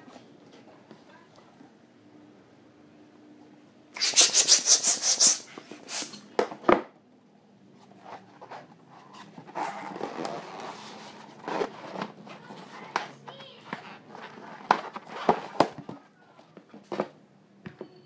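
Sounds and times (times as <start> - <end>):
hands rubbing balloons: 4.0 - 6.2.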